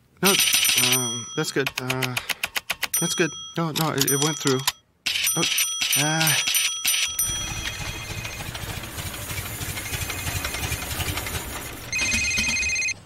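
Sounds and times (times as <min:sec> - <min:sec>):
phone ringing: 0:00.2 - 0:02.1, 0:03.0 - 0:11.2, 0:11.9 - 0:13.0
car engine and road rumble: 0:07.2 - 0:12.0.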